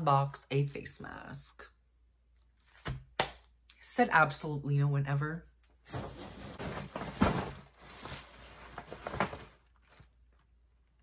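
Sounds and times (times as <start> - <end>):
paper bag rustling and crinkling: 5.8 - 10.4.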